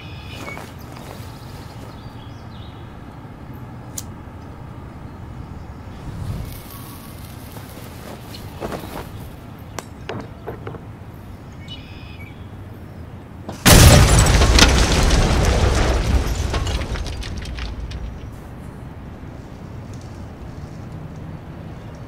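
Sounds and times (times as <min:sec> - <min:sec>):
faint outdoor ambience: 0:00.0 - 0:22.0
crackling noise: 0:05.8 - 0:09.5, 0:13.6 - 0:21.2
explosion blast: 0:13.6 - 0:18.4.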